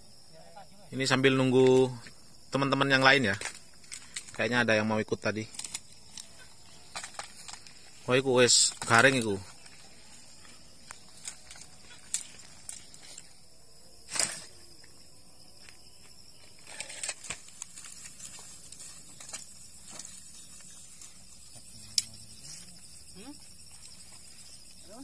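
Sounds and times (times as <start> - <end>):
crickets chirring: 0.0 - 25.0.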